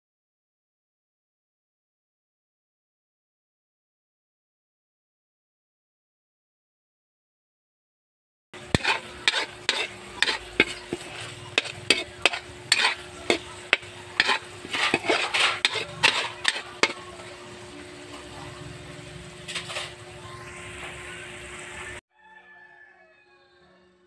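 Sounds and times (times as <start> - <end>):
food sizzling in oil: 8.6 - 22.0
metal spatula scraping wok: 8.6 - 22.0.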